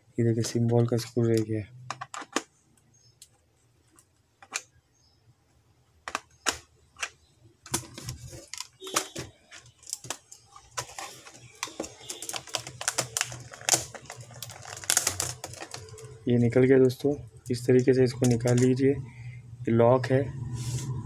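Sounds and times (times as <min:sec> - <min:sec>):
keyboard clicking and rattling: 0:01.8 - 0:02.5, 0:03.9 - 0:04.7, 0:06.0 - 0:16.3, 0:17.4 - 0:18.8
plastic clicks and knocks: 0:01.8 - 0:02.5, 0:03.2 - 0:04.7, 0:06.0 - 0:16.2.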